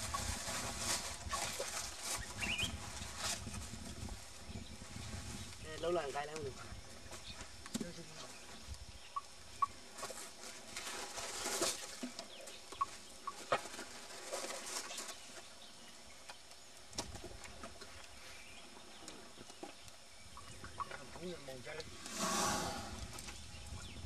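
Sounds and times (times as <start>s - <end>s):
rustling in woven basket: 0.0s - 8.7s, 9.8s - 16.3s
bird chirps: 2.2s - 2.8s.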